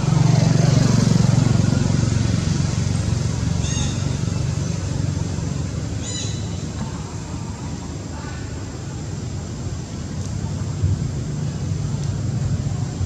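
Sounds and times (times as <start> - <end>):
vehicle engine running: 0.0 - 8.0.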